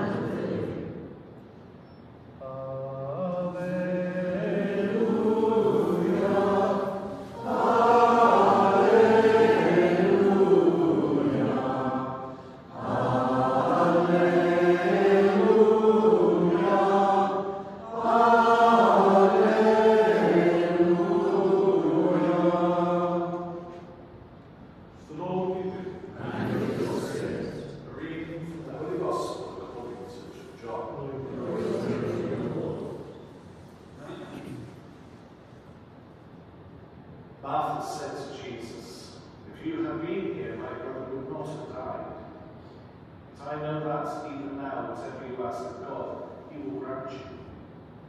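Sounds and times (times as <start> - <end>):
voices chanting: 2.4 - 23.7, 25.6 - 27.8, 31.0 - 33.1.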